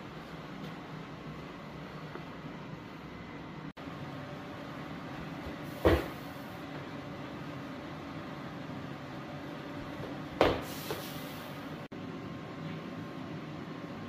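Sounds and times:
low room hum: 0.0 - 14.0
feet landing on rubber floor: 5.4 - 6.3, 10.0 - 11.1.

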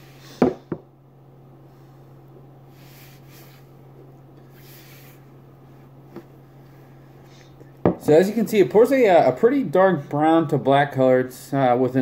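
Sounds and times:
soft breaths through nose: 1.6 - 3.8, 4.4 - 5.9.

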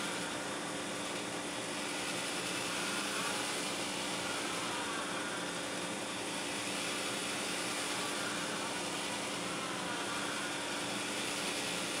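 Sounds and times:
motor mechanical hum: 0.0 - 12.0.

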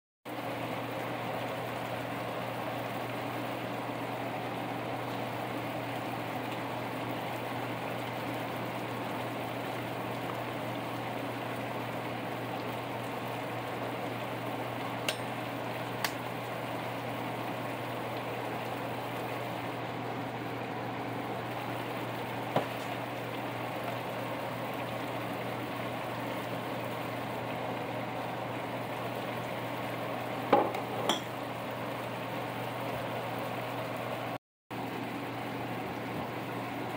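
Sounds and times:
pot boiling: 0.3 - 36.9
sauce sizzling in frying pan: 21.2 - 32.0.

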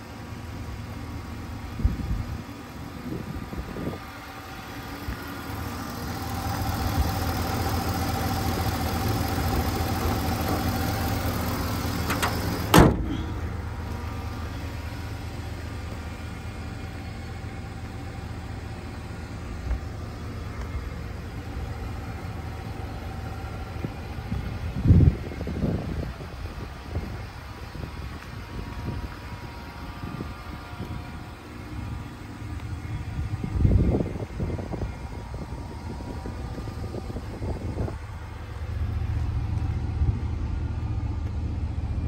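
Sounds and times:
truck engine idling: 0.0 - 42.0
hood slamming shut: 9.9 - 13.6.

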